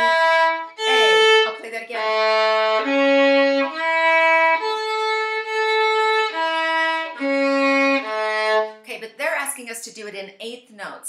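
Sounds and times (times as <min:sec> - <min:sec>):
solo violin arpeggio: 0:00.0 - 0:08.8.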